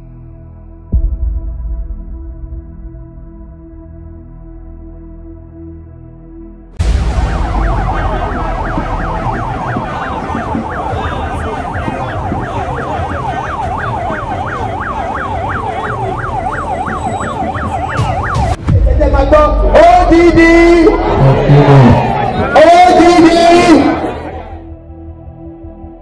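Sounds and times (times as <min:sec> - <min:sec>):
police siren yelping: 0:06.8 - 0:18.6, 0:20.8 - 0:24.6
low background din: 0:06.8 - 0:24.6.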